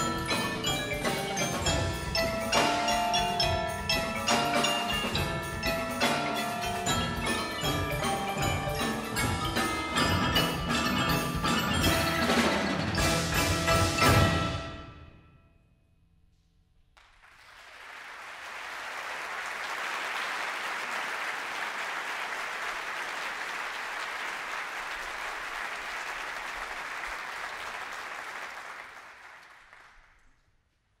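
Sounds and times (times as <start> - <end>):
audience applauding: 17.0 - 30.3.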